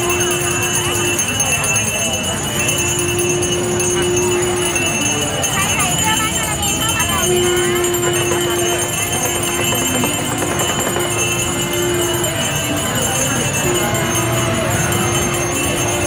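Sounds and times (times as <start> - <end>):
bells jingling: 0.0 - 16.0
long held note: 0.0 - 16.0.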